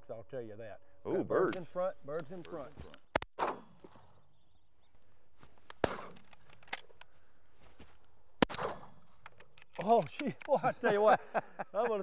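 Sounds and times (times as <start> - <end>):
shotgun shots: 3.1 - 3.8, 5.8 - 6.3, 8.4 - 9.0.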